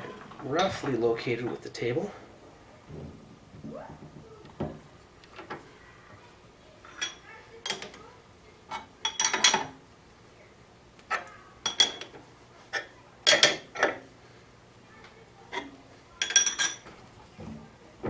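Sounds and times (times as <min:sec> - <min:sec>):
wrench clinking on metal: 0:16.2 - 0:16.8.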